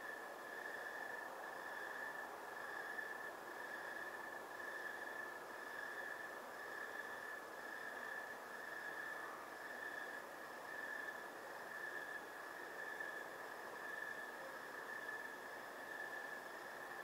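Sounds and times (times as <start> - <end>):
faint background hiss: 0.0 - 17.0
night insects trilling: 0.0 - 17.0.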